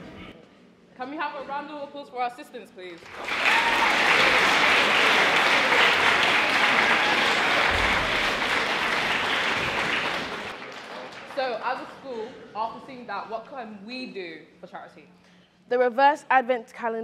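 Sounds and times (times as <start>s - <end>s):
audience applauding: 3.0s - 11.8s.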